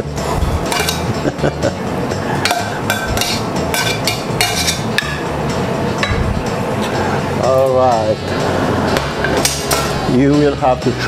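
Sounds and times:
metal tongs clinking on pan: 0.7s - 1.1s, 2.4s - 5.2s.

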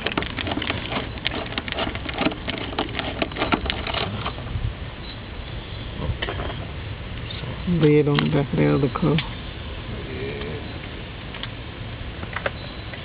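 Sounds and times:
parts clicking and rattling: 0.0s - 4.4s
steady low hiss: 0.0s - 13.0s.

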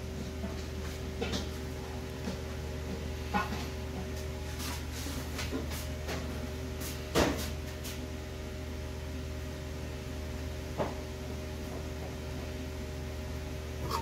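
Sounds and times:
kitchen equipment humming: 0.0s - 14.0s.

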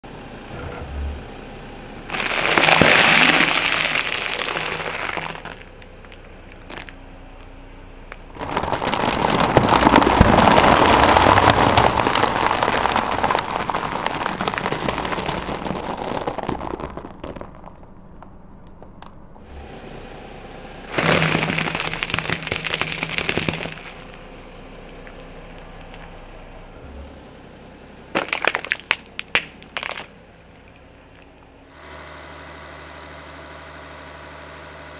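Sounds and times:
tyre crushing objects: 2.1s - 7.5s, 8.1s - 17.7s, 20.9s - 24.4s, 28.2s - 31.3s.

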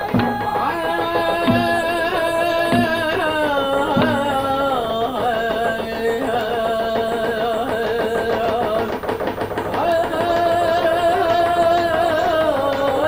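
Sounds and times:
men singing: 0.0s - 13.0s
slow hand drum beat: 0.0s - 13.0s.

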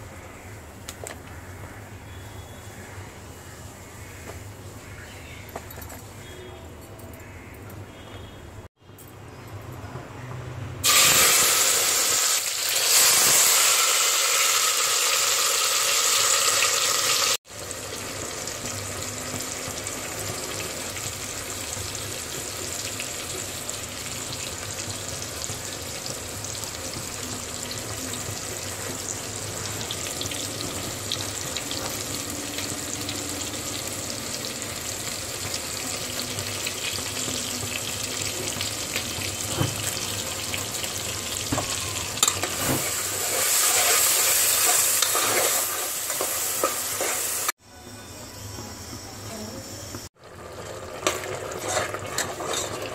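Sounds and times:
food sizzling in hot oil: 10.8s - 47.6s, 50.1s - 52.9s.

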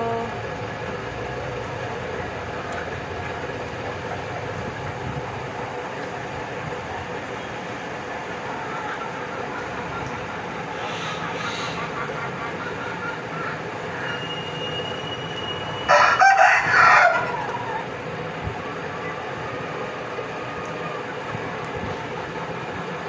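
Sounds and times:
steady rushing background noise: 0.3s - 23.0s
chicken squawking: 10.7s - 14.1s.

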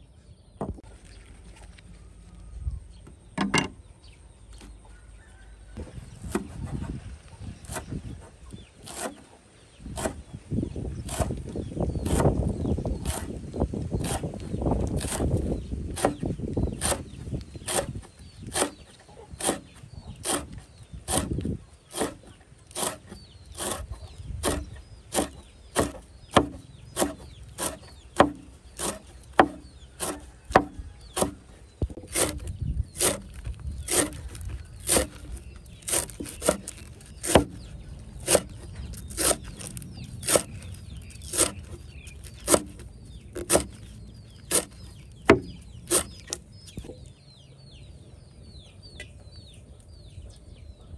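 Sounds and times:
knife chopping on wooden board: 10.0s - 10.2s, 16.0s - 17.1s, 17.7s - 18.8s, 19.4s - 20.5s, 21.1s - 21.4s, 24.4s - 31.4s, 32.0s - 33.3s, 33.9s - 35.3s, 35.9s - 37.6s, 38.2s - 39.5s, 41.2s - 42.8s, 43.4s - 43.8s, 44.5s - 46.4s.

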